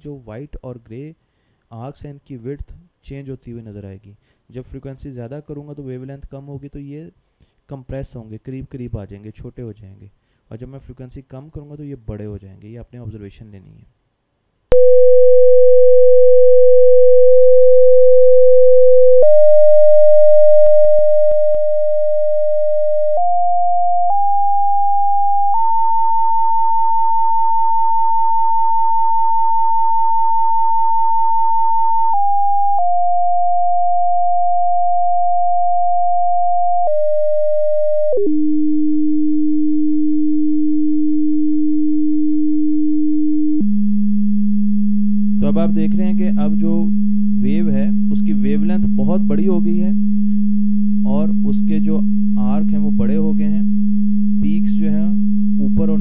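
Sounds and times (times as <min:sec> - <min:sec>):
stepped electronic test tone: 0:14.7 - 0:56.0.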